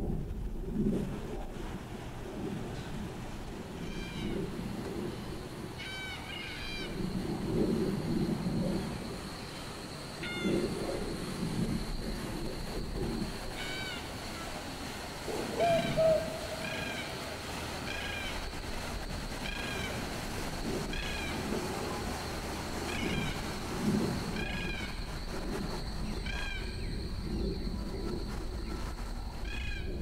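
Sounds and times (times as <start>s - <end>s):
bird calling: 5.7s - 7.0s, 13.2s - 20.2s, 22.8s - 27.6s.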